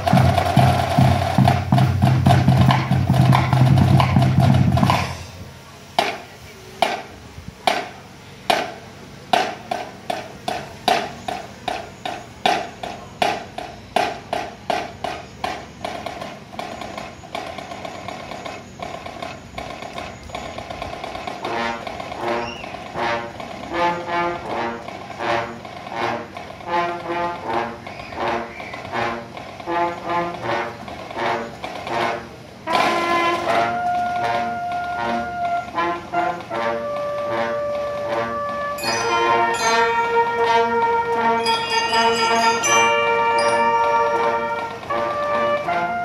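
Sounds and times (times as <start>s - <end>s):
marching band drumming: 0.0s - 5.4s, 6.0s - 46.0s
brass chords: 21.4s - 46.0s
ringing percussion strikes: 36.9s - 45.0s.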